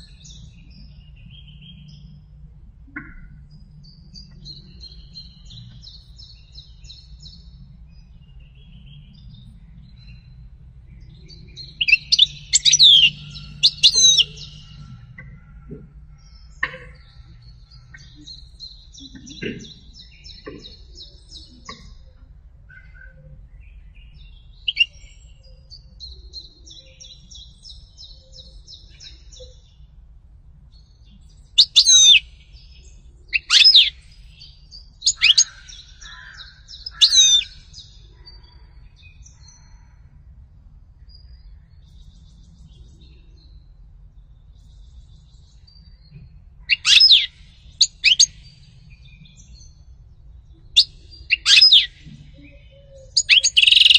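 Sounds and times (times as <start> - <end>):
goldfinch twittering trills: 11.8 - 14.7, 46.7 - 48.3, 53.1 - 53.9.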